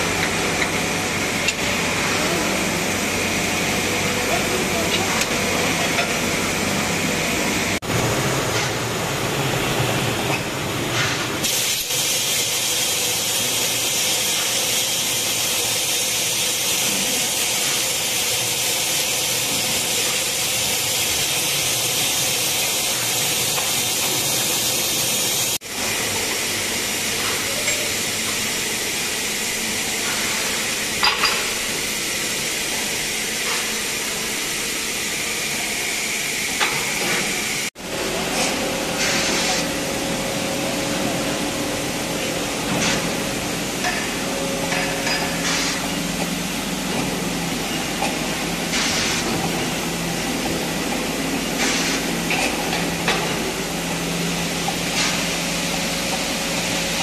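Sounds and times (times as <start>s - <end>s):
steam hissing: 11.0s - 37.7s, 38.9s - 57.0s.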